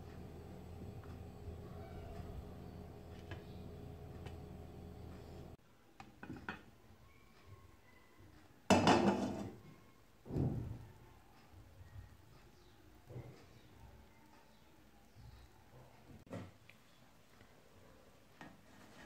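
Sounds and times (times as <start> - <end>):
low hum: 0.0 - 5.6.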